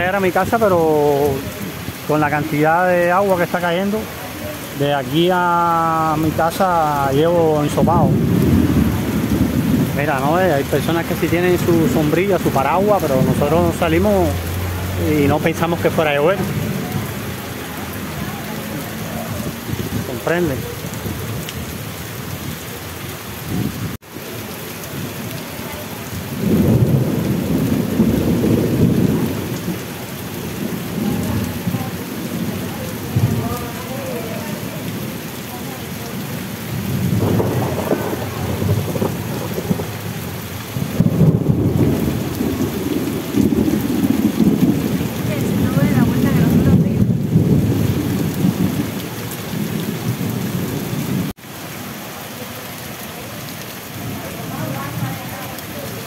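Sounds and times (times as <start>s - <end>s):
heavy rain pouring: 0.0s - 56.0s
thunder rolling: 6.2s - 18.5s, 26.1s - 33.8s, 36.7s - 51.3s.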